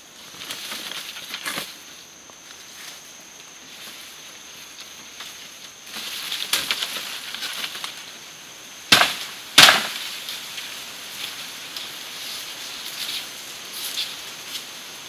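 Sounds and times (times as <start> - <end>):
rustling in undergrowth: 0.0 - 15.0
sharp chops into wood: 8.9 - 10.0.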